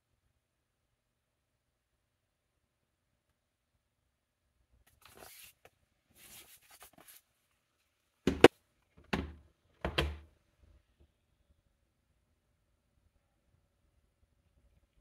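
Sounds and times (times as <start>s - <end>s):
hands rustling on laptop: 4.9s - 7.4s
laptop knocking on wooden desk: 8.3s - 10.2s.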